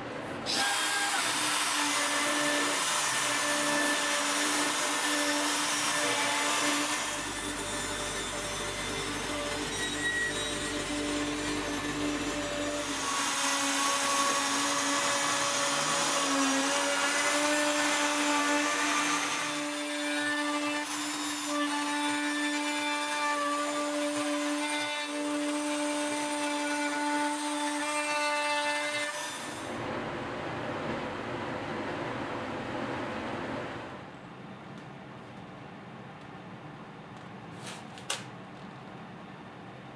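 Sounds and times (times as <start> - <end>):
router spindle whining: 0.5 - 23.2.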